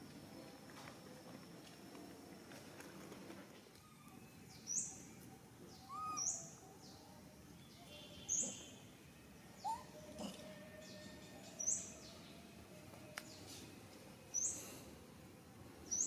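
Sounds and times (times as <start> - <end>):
fainter lower bird calls: 5.7 - 6.6, 9.5 - 12.2.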